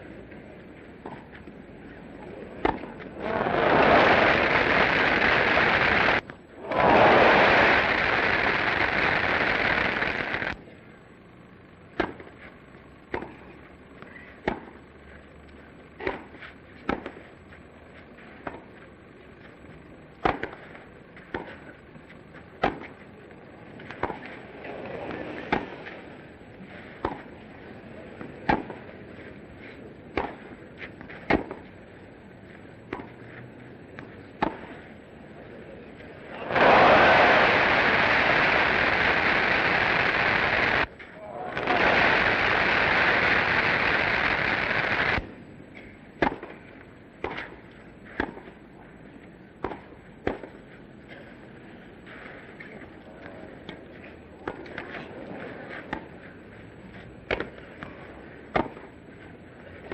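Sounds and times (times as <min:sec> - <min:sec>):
tennis rackets striking ball: 0:02.6 - 0:03.0, 0:11.9 - 0:12.3, 0:13.1 - 0:13.5, 0:14.4 - 0:14.8, 0:16.0 - 0:17.2, 0:20.2 - 0:21.7, 0:22.6 - 0:23.0, 0:23.8 - 0:24.4, 0:25.4 - 0:25.9, 0:27.0 - 0:27.3, 0:28.4 - 0:28.9, 0:30.1 - 0:31.6, 0:32.9 - 0:34.9, 0:46.2 - 0:46.6, 0:47.2 - 0:48.5, 0:49.6 - 0:50.6, 0:57.3 - 0:57.9, 0:58.5 - 0:58.9
crowd applauding: 0:06.7 - 0:09.2, 0:36.4 - 0:40.9.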